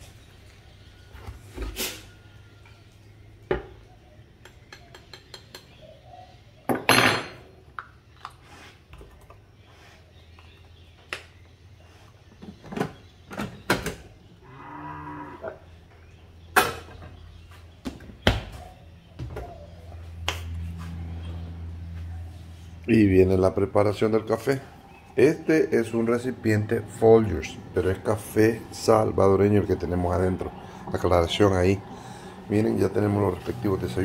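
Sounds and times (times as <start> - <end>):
mug set on counter: 6.7 - 7.4
cow mooing: 14.4 - 15.7.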